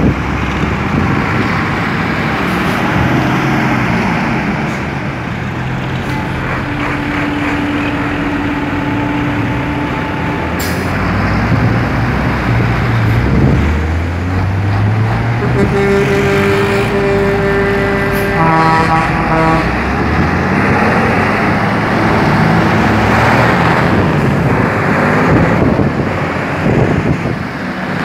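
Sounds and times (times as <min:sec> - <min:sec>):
large trucks driving past: 0:00.0 - 0:28.0
steady tone: 0:05.4 - 0:12.2.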